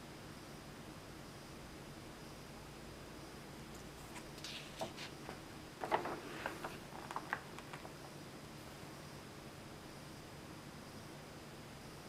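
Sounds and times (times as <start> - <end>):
paper page rustling: 3.8 - 8.1.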